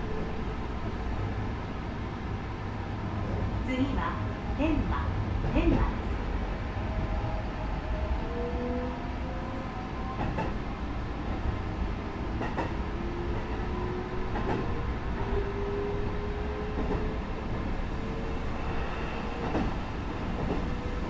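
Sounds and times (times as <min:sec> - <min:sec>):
electric train rumble: 0:00.0 - 0:21.0.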